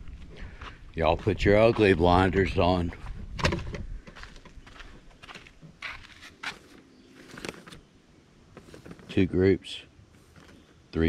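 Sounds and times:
footsteps on sandy dirt: 0.0s - 7.6s.

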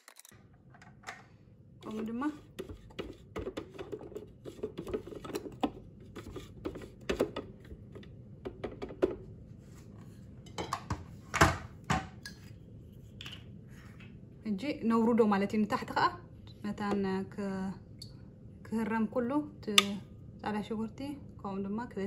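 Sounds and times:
spatula scraping plastic bowl: 1.8s - 7.4s.

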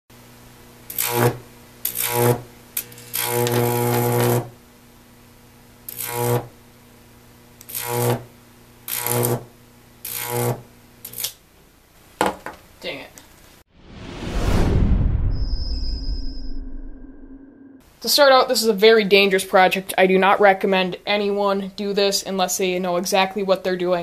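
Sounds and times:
electric arc buzzing: 0.6s - 11.4s.

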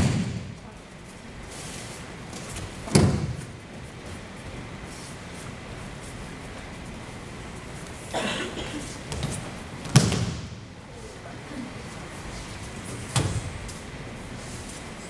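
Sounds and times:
bodies slamming onto mats: 2.8s - 3.5s, 9.1s - 10.6s.

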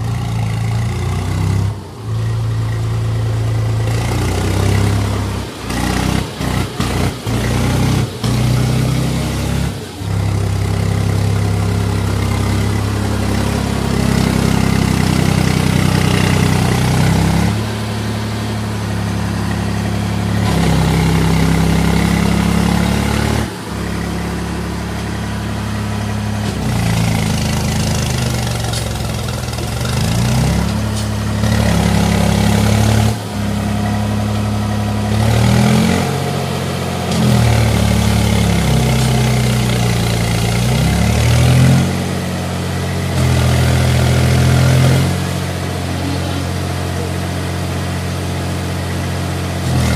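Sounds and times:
tractor diesel engine revving: 0.0s - 49.9s.

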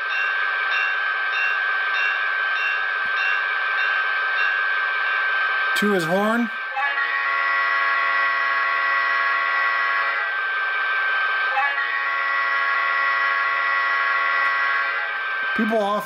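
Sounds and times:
model locomotive air horn: 6.0s - 15.8s.

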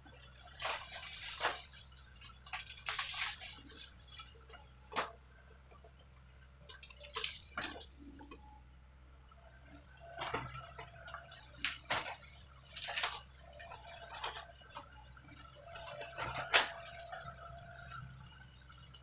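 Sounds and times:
excavator engine humming: 0.0s - 19.0s
branches crackling and snapping: 0.5s - 4.3s, 6.7s - 7.8s, 10.1s - 14.4s.

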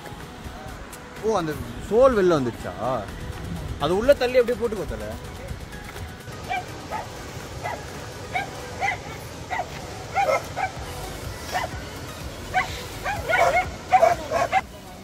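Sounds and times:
dog barking: 6.5s - 10.8s, 11.5s - 11.8s, 12.5s - 14.7s.

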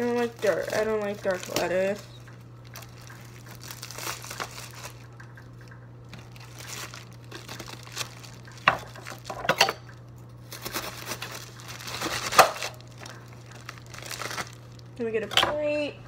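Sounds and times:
plastic wrap crinkling: 0.0s - 15.3s.

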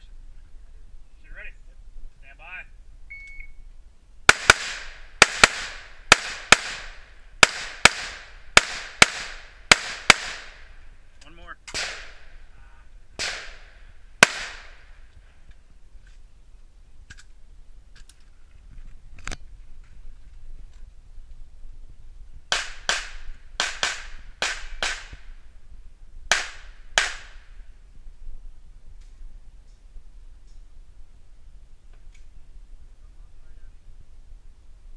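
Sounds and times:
pistol shots with echo: 4.3s - 10.6s, 11.7s - 12.3s, 13.2s - 14.9s, 22.5s - 25.2s, 26.3s - 27.5s.

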